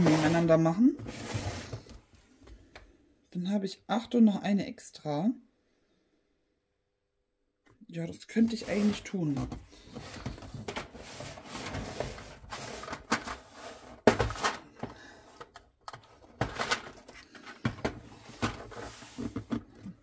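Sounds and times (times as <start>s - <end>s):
plastic boxes knocking and clicking: 9.3s - 20.0s.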